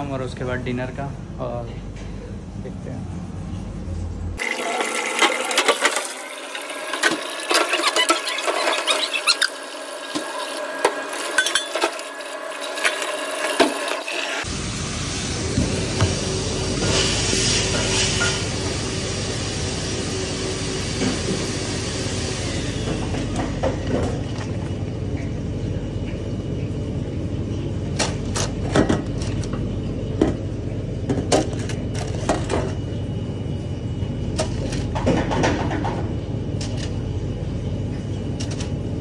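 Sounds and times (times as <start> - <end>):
ventilation rumble: 18.5 - 39.0.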